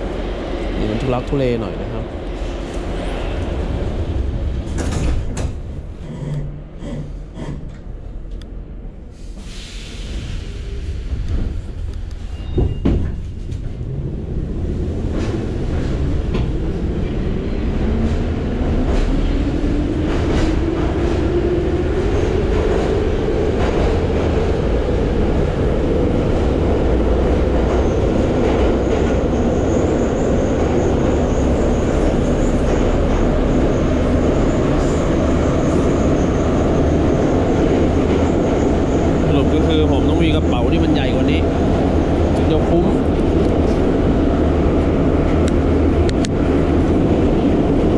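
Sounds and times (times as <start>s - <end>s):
train wheels rumbling: 0.0s - 47.9s
train knocks: 4.5s - 6.6s, 12.3s - 13.8s.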